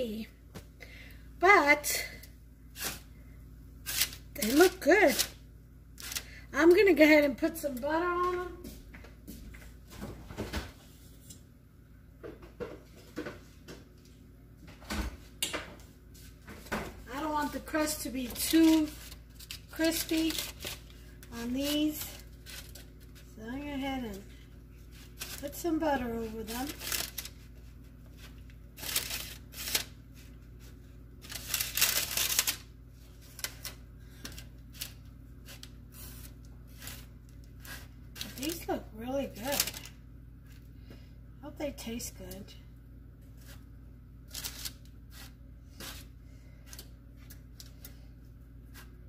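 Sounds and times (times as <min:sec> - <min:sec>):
paper rustling and scraping: 0:24.8 - 0:38.6.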